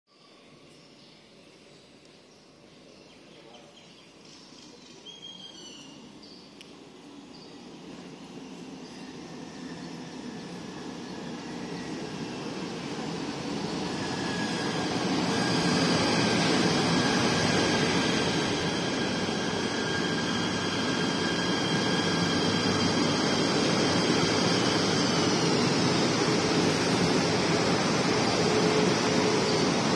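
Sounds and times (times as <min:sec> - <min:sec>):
train wheels rumbling on rail: 0:06.7 - 0:29.9.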